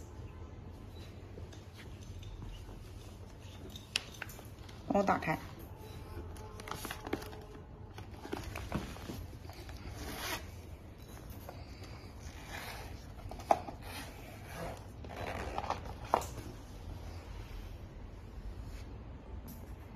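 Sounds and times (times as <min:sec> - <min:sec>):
zipper rasping open: 0:12.2 - 0:16.1.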